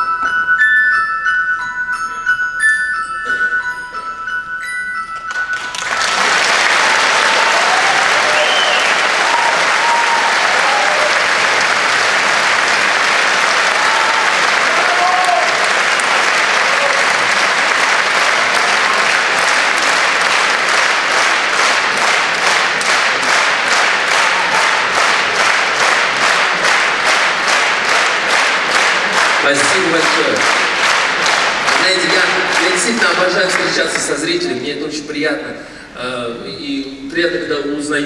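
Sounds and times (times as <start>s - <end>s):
audience applauding: 5.2s - 34.5s.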